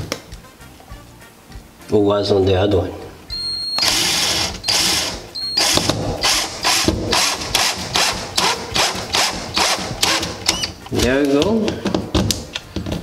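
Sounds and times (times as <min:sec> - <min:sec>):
cordless drill driving a screw: 0:03.7 - 0:10.7.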